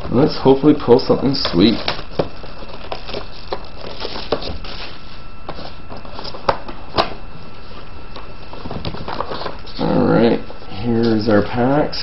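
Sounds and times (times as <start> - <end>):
plastic wrap crinkling: 0.0 - 6.5.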